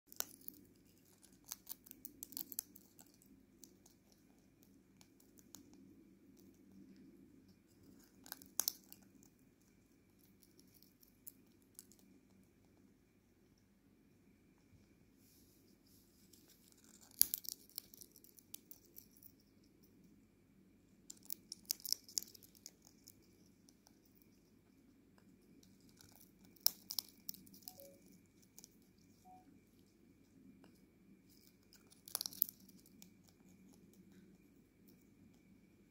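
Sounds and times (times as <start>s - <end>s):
parrot cracking seeds: 0.1s - 6.6s, 7.8s - 9.3s, 16.3s - 19.8s, 21.0s - 24.4s, 25.5s - 29.1s, 31.3s - 34.0s
parrot cracking seed husks: 8.1s - 9.0s, 16.7s - 19.1s, 25.9s - 27.7s, 31.3s - 33.2s
seeds rustling in ceramic bowl: 25.4s - 29.4s.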